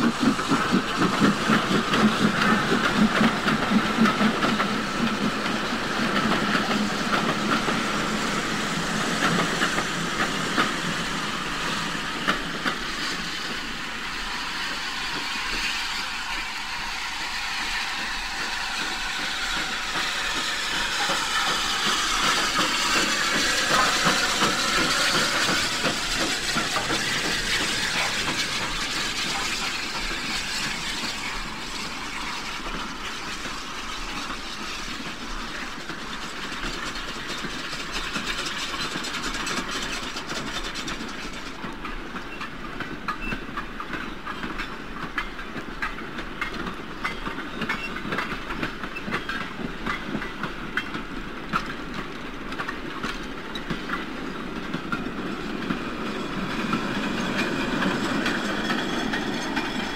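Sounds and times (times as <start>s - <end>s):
steam hissing: 0.0s - 59.9s
train wagons clanking over rail joints: 17.7s - 59.9s.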